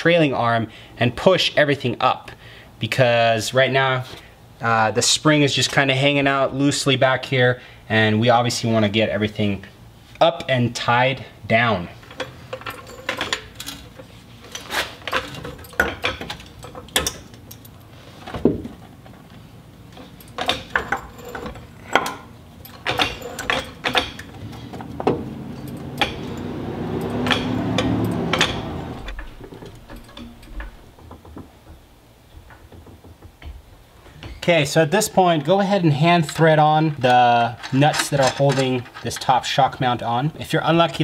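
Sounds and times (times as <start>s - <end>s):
floor jack metal clicks and clanks: 12.0s - 19.3s, 19.9s - 34.4s.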